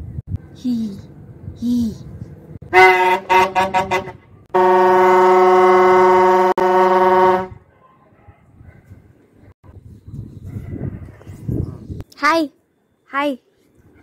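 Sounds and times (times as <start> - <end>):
vuvuzela blowing: 2.7 - 7.6.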